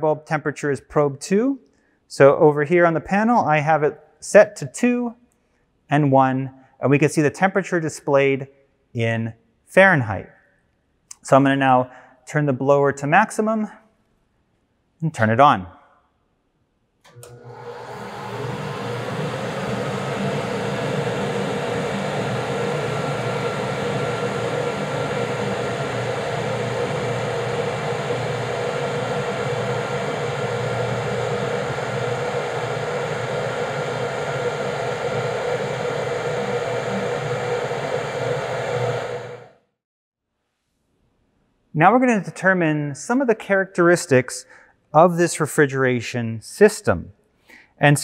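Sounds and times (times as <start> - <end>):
air conditioning blower running: 17.1 - 39.6.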